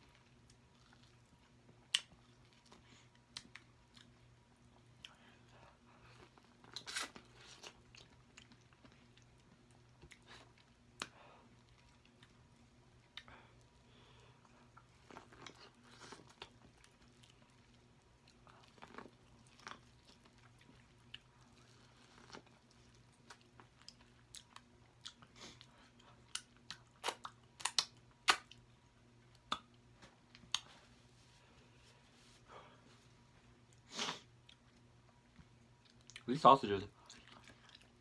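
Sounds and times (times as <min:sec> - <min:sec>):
chewing corn on the cob: 0:00.0 - 0:13.7, 0:14.3 - 0:28.7, 0:37.0 - 0:38.0.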